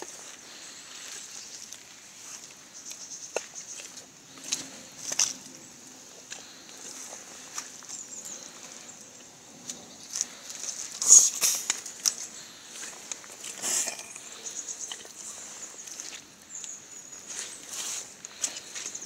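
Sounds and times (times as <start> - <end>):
squelching footsteps in mud: 0.0 - 19.0.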